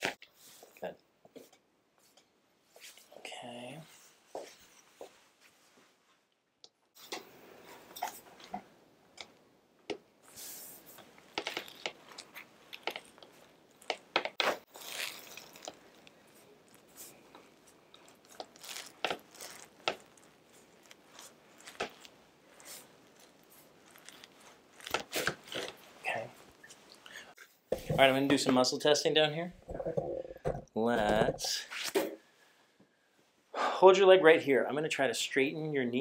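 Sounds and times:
hands rubbing cotton shirt: 0:10.2 - 0:27.0.

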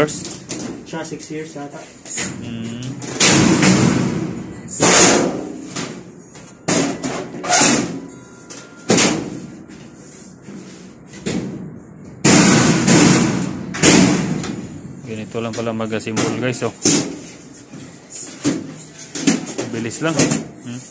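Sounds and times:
sheet metal bangs and clatters: 0:03.1 - 0:06.0, 0:12.2 - 0:15.0.

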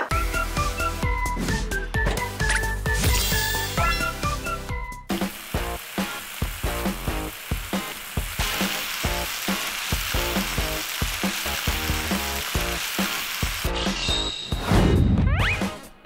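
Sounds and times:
background music with beat: 0:00.0 - 0:12.8
meat sizzling on grill: 0:05.1 - 0:14.4.

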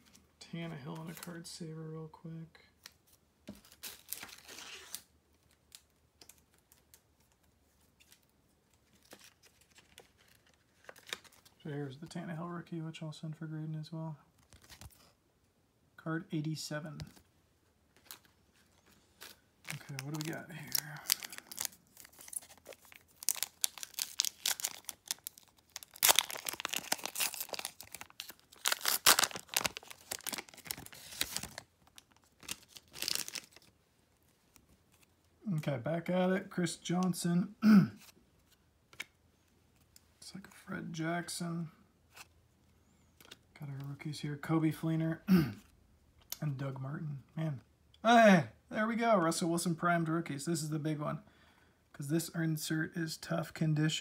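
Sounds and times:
wrapper tearing and crinkling: 0:03.6 - 0:05.1, 0:19.1 - 0:33.7.

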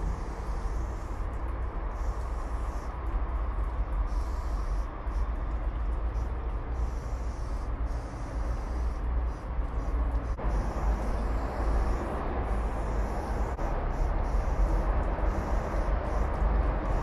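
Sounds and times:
spray paint can hissing: 0:00.0 - 0:17.0.

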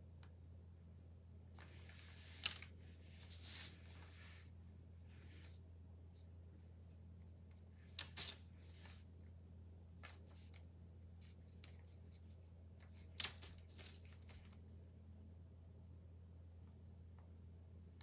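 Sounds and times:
steady low hum: 0:00.0 - 0:18.0
paintbrush rustling on wood: 0:03.1 - 0:04.5, 0:05.2 - 0:14.6.

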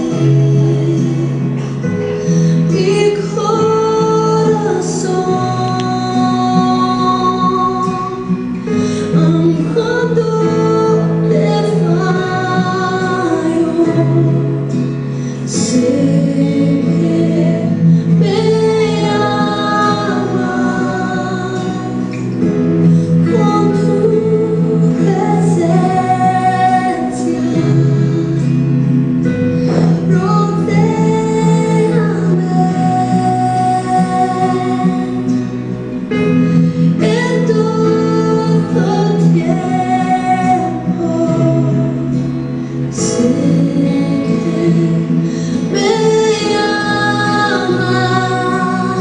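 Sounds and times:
woman singing slowly: 0:00.0 - 0:14.8, 0:15.5 - 0:22.5, 0:23.2 - 0:28.7, 0:29.6 - 0:35.5, 0:36.8 - 0:49.0.

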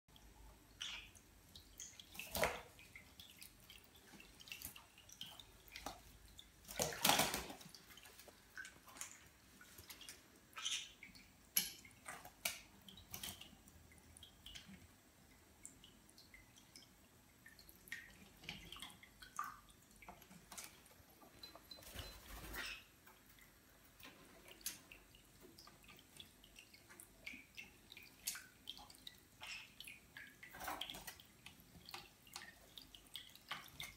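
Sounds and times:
birds splashing in water: 0:00.7 - 0:14.8, 0:17.5 - 0:33.9
wings flapping: 0:06.8 - 0:07.6.

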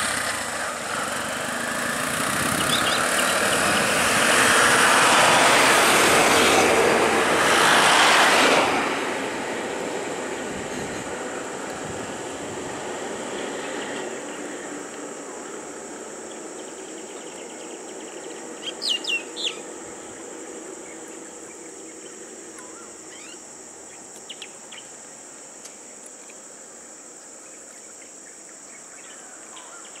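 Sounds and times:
high-pitched insect drone: 0:00.0 - 0:08.6, 0:09.8 - 0:30.0
car engines passing: 0:00.0 - 0:23.9
birds calling: 0:02.4 - 0:04.4, 0:16.4 - 0:24.9.

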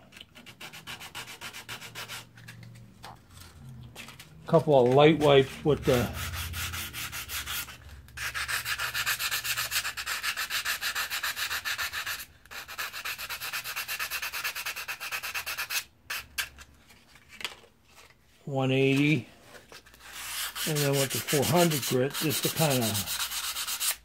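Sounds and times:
sandpaper rasping on metal: 0:00.4 - 0:02.3, 0:04.6 - 0:16.4, 0:20.0 - 0:24.0.

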